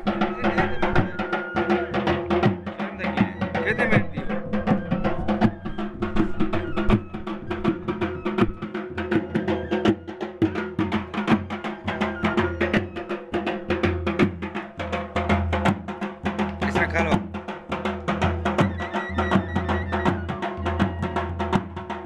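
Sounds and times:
droning wind instrument melody: 0:00.0 - 0:14.2, 0:18.4 - 0:21.4
barrel drums beaten fast: 0:00.0 - 0:22.0.

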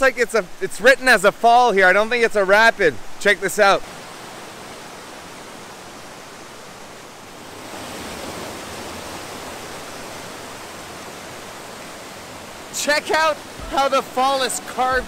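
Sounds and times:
small waterfall rushing over rock: 0:03.6 - 0:15.0.

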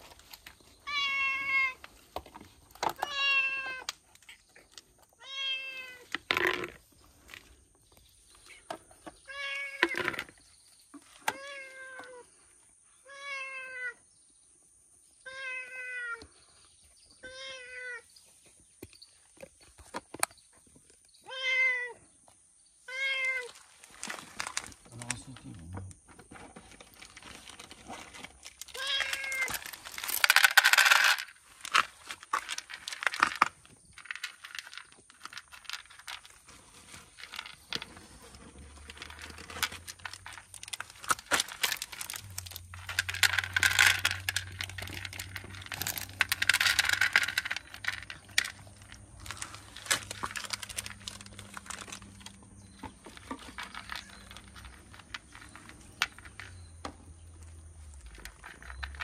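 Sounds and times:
cat meowing: 0:00.8 - 0:01.8, 0:13.0 - 0:14.0, 0:15.2 - 0:16.2
crinkling rustling bursts: 0:23.4 - 0:25.6, 0:26.3 - 0:56.6
cats eating with clicks: 0:23.7 - 0:26.0, 0:37.4 - 0:59.0.

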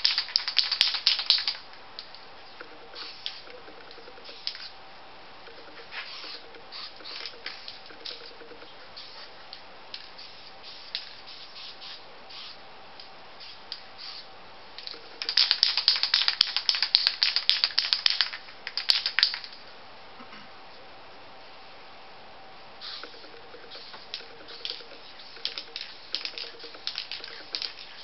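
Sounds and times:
spray can ball rattling: 0:00.0 - 0:04.7, 0:05.5 - 0:09.3, 0:09.9 - 0:12.6, 0:13.4 - 0:14.2, 0:14.8 - 0:19.6, 0:22.8 - 0:28.0.

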